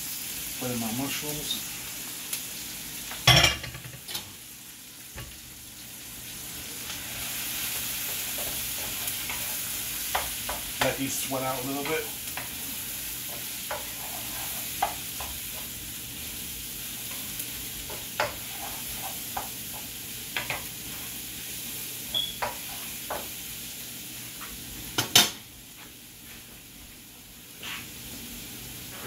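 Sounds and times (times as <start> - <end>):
vegetables sizzling in a wok: 0.0 - 29.0
utensil scraping a pan: 7.7 - 12.7, 13.3 - 15.7, 17.9 - 21.1.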